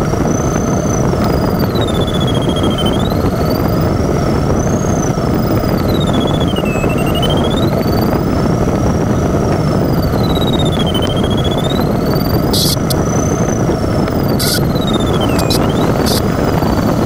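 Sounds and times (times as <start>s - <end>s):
rush of airflow: 7.4s - 17.0s
thin electronic tone sliding: 9.8s - 17.0s
short hissy bursts: 14.4s - 14.6s.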